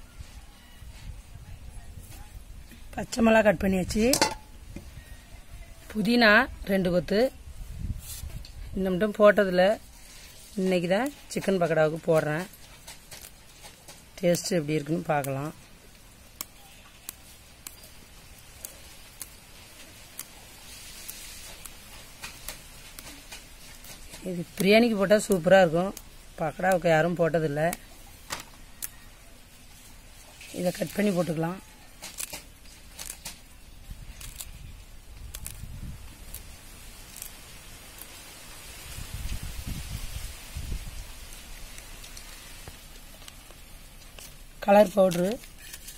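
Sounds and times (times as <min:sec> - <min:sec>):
leaves rustling: 0:00.0 - 0:45.9
mint stems snapping: 0:11.0 - 0:29.0, 0:30.2 - 0:39.4, 0:40.9 - 0:45.9.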